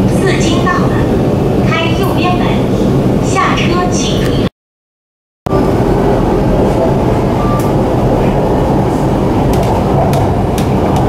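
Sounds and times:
train rumbling from inside carriage: 0:00.0 - 0:04.5, 0:05.5 - 0:11.0.

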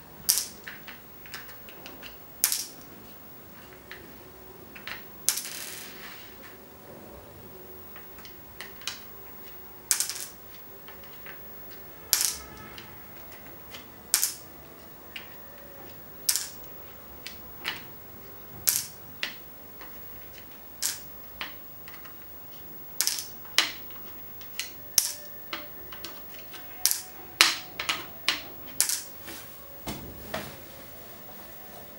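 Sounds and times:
plastic pegs clicking on board: 0:00.2 - 0:02.9, 0:04.7 - 0:05.8, 0:07.9 - 0:14.4, 0:15.1 - 0:17.9, 0:18.6 - 0:29.1.

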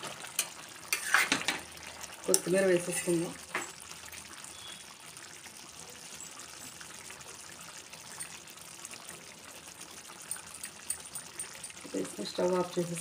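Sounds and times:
curry bubbling in a pot: 0:00.0 - 0:13.0.

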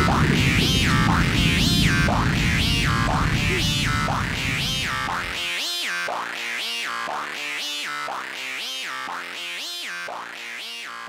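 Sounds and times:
sweeping synthesizer phrase: 0:00.0 - 0:05.5.

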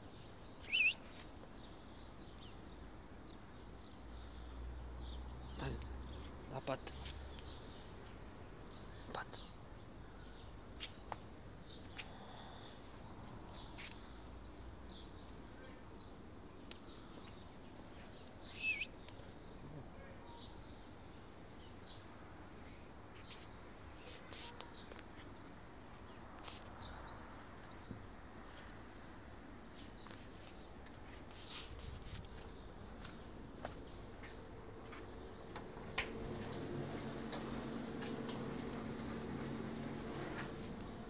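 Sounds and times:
small birds chirping: 0:00.0 - 0:41.0
downward-sliding bird chirp: 0:00.6 - 0:01.2, 0:17.9 - 0:20.7.

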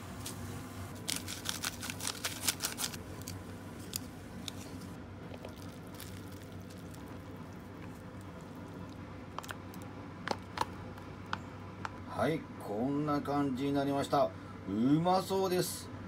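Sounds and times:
plastic sachets crinkling: 0:01.0 - 0:11.0.

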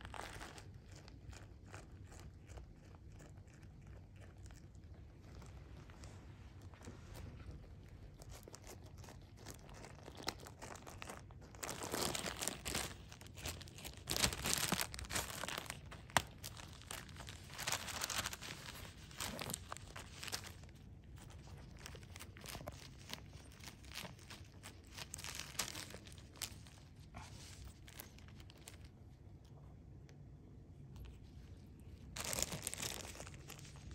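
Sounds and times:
cat tearing a plastic bag: 0:00.0 - 0:02.2, 0:08.0 - 0:28.9, 0:32.1 - 0:33.9.

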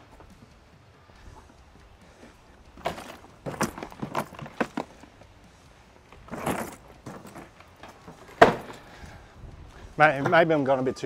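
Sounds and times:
cart with boxes clattering: 0:01.2 - 0:09.1.

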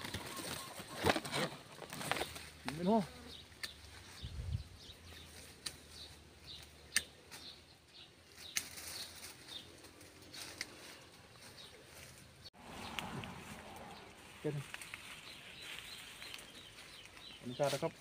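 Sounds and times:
tree branches rustling: 0:00.0 - 0:18.0
twigs snapping: 0:05.3 - 0:07.6, 0:08.4 - 0:10.9, 0:14.6 - 0:17.4.

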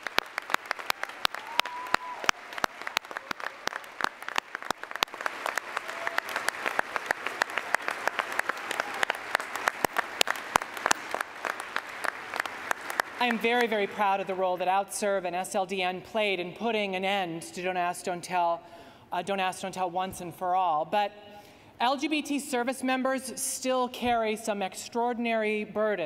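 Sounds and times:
sharp claps close to microphone: 0:00.0 - 0:13.9
audience applauding: 0:00.0 - 0:14.0.

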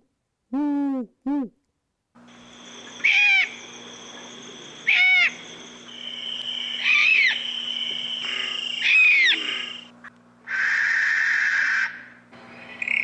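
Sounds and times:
low background hum: 0:00.0 - 0:13.0
owl calling: 0:02.3 - 0:09.9, 0:10.5 - 0:12.2.

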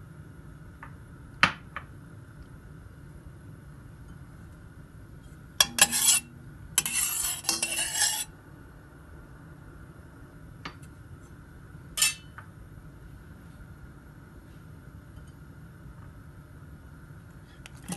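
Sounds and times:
metal utensil scraping a pan: 0:05.6 - 0:08.3, 0:12.0 - 0:12.3.

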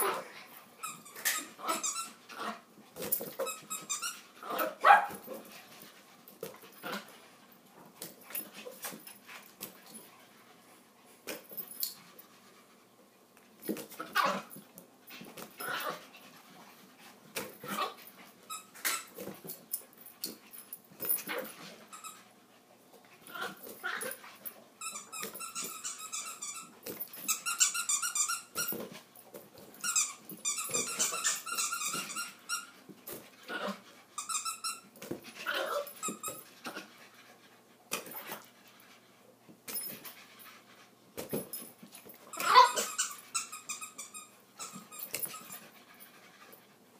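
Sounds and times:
rubbery balloon squeaks: 0:03.4 - 0:05.2, 0:29.8 - 0:32.8, 0:42.3 - 0:45.6
dog cries and growls: 0:35.4 - 0:36.9, 0:42.3 - 0:43.2.

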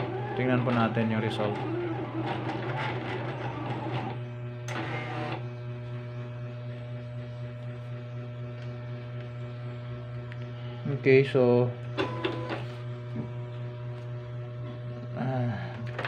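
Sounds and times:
cutter motors whirring: 0:00.0 - 0:07.2
plotter steady hum: 0:00.0 - 0:16.0.

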